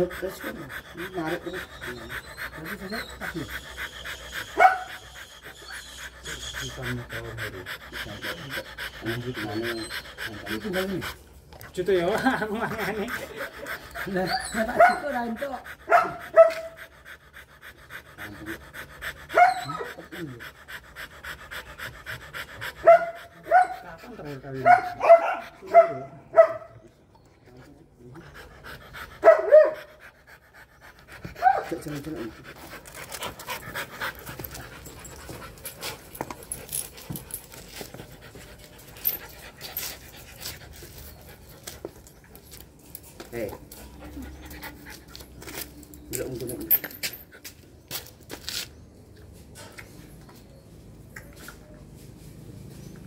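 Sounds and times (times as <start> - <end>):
dog panting rapidly: 0.0 - 26.2, 27.5 - 47.6
dog crying: 13.4 - 16.7.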